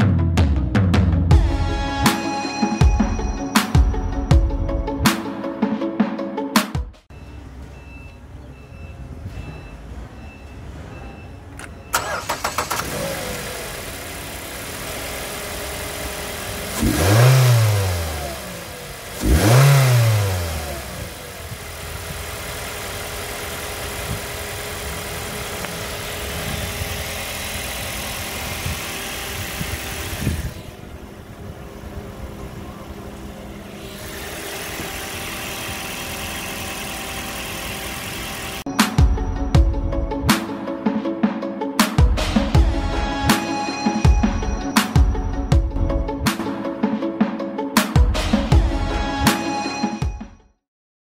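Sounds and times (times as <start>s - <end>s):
car engine idling and revving: 7.1s - 40.8s
high engine hiss: 20.9s - 38.6s.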